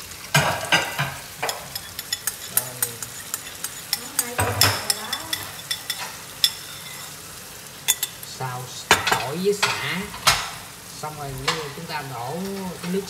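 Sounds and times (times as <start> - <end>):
sauce sizzling in hot oil: 0.0 - 13.0
wooden spatula stirring: 0.8 - 7.2.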